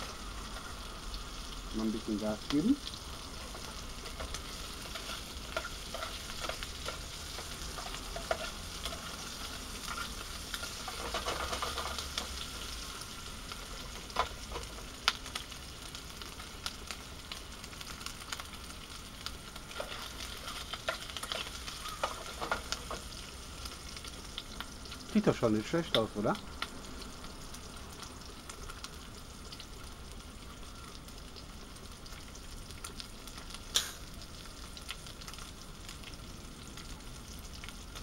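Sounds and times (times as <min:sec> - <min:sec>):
sausage sizzling in a pan: 0:00.0 - 0:38.0
clicks and scrapes in a pan: 0:03.4 - 0:12.5, 0:19.7 - 0:23.1.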